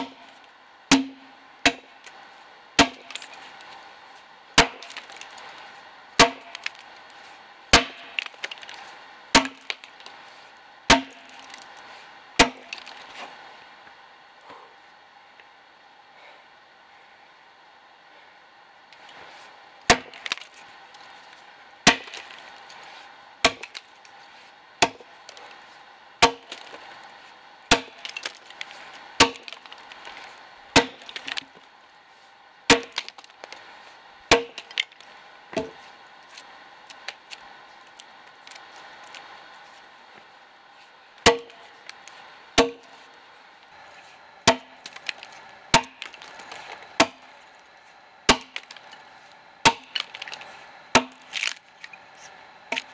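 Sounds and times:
axe chopping log: 0.0s - 0.3s, 0.9s - 1.9s, 2.8s - 3.3s, 4.6s - 5.3s, 6.2s - 6.8s, 7.7s - 8.8s, 9.4s - 10.1s, 10.9s - 11.6s, 12.4s - 13.1s, 19.9s - 20.6s, 21.9s - 22.4s, 23.4s - 23.9s, 24.8s - 25.4s, 26.2s - 26.8s, 27.7s - 30.1s, 30.7s - 31.5s, 32.7s - 33.5s, 34.3s - 35.0s, 35.6s - 35.8s, 41.2s - 41.6s, 42.6s - 43.0s, 44.4s - 47.3s, 48.3s - 48.9s, 49.6s - 51.6s, 52.7s - 52.9s
wood cracking: 27.7s - 31.5s, 44.5s - 47.2s, 49.6s - 52.0s.

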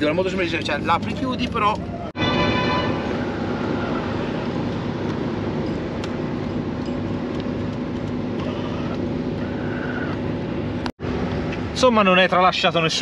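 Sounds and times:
steady mechanical hum: 2.8s - 13.0s.

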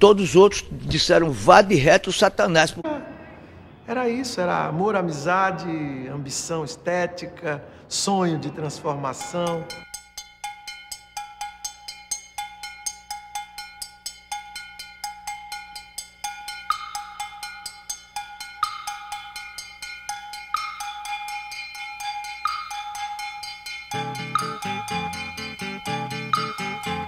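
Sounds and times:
held tone: 9.1s - 27.0s.

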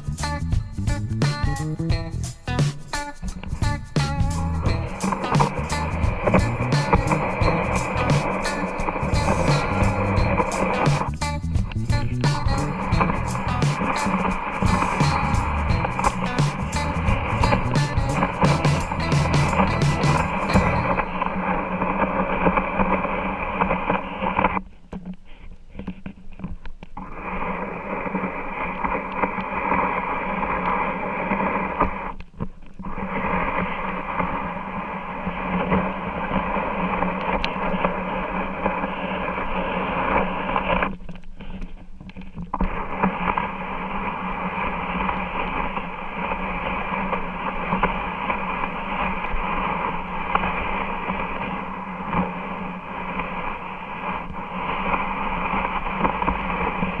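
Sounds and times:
static-like hiss: 0.0s - 57.0s
low hum: 3.3s - 24.3s.

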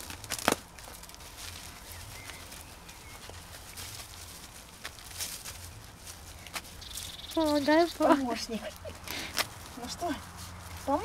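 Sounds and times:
sharp crunches: 0.0s - 7.2s
rustling of mulch: 0.0s - 11.0s.

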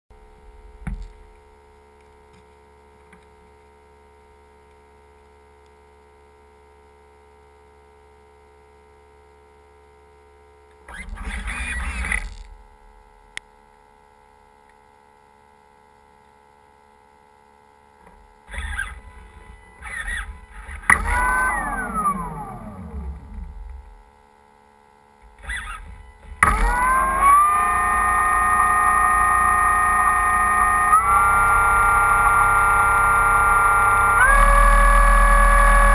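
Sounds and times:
faint electrical hum: 0.1s - 35.9s
electric motor whine: 10.9s - 12.6s, 18.4s - 24.1s, 25.2s - 35.9s.

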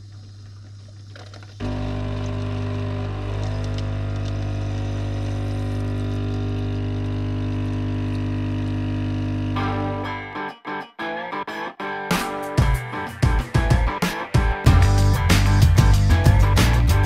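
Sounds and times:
coffee machine pump humming: 0.0s - 9.6s
coffee streaming into mug: 0.1s - 9.5s.

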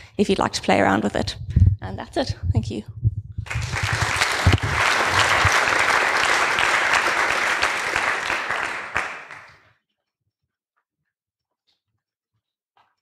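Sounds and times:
audience applauding: 3.4s - 9.6s.

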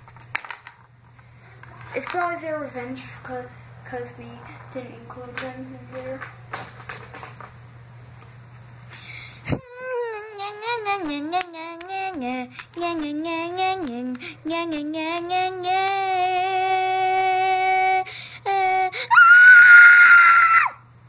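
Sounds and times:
child making sing-song sounds: 9.5s - 19.1s
child screaming: 19.1s - 20.8s.

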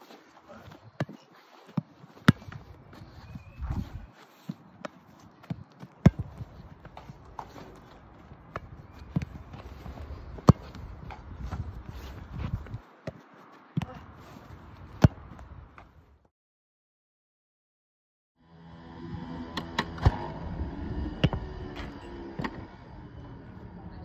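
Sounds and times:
football kicks and catches thudding: 4.8s - 7.0s, 15.0s - 15.4s.

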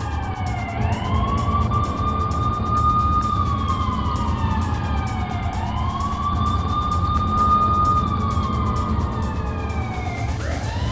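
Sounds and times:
low rumble: 0.0s - 10.9s
police siren wailing: 0.0s - 10.9s.

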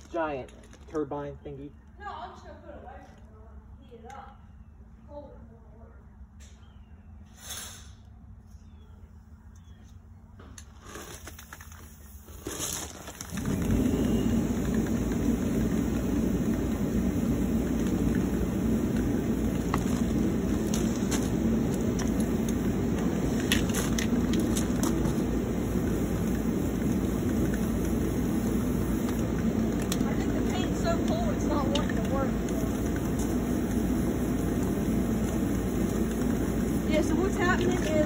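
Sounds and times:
large blower fan running: 12.4s - 38.0s.

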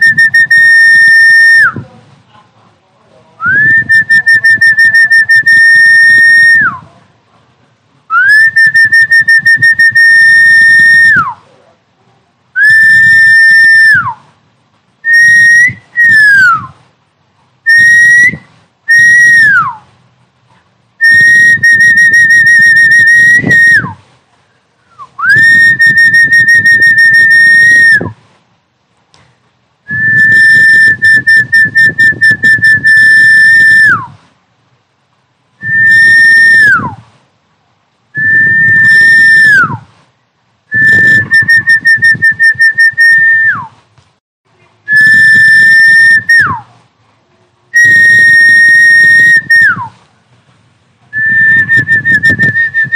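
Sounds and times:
loud distorted high whistle: 0.0s - 1.8s, 3.4s - 6.8s, 8.2s - 11.4s, 12.6s - 14.2s, 15.0s - 16.8s, 17.7s - 19.8s, 21.0s - 24.0s, 25.0s - 28.2s, 29.9s - 34.2s, 35.6s - 37.0s, 38.2s - 39.9s, 40.7s - 43.7s, 44.9s - 46.6s, 47.8s - 49.9s, 51.1s - 52.9s.

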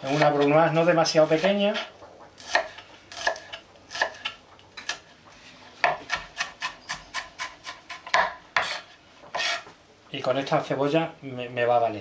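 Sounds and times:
knife chopping on cutting board: 1.3s - 5.0s, 5.8s - 9.6s.

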